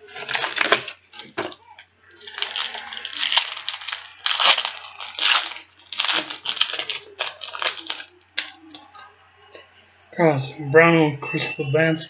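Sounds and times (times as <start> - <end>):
foil pack crinkling and rustling: 0.0 - 9.0.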